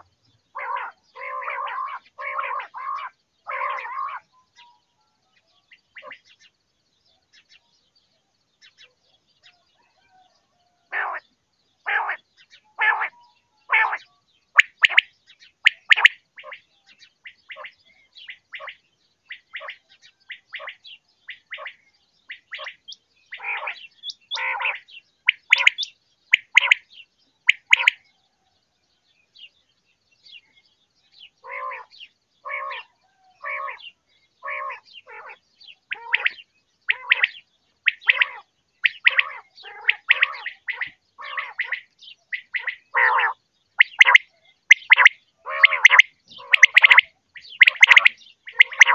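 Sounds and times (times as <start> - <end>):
quail calling: 0.0 - 4.2, 5.9 - 6.4, 10.9 - 26.8, 27.4 - 28.0, 31.4 - 48.9.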